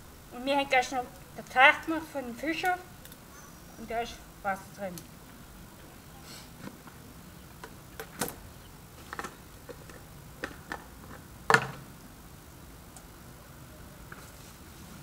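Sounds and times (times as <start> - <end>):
plastic jerrycans clicking and knocking: 9.1 - 11.8.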